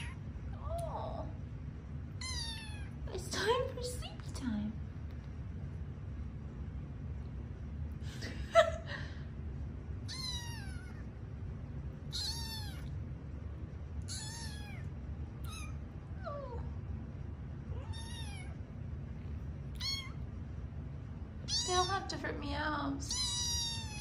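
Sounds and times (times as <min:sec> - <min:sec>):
kittens meowing: 0:00.0 - 0:00.2, 0:02.2 - 0:03.0, 0:10.0 - 0:11.1, 0:12.0 - 0:13.0, 0:14.0 - 0:16.7, 0:17.7 - 0:18.6, 0:19.7 - 0:20.2, 0:21.4 - 0:22.0, 0:23.1 - 0:24.0.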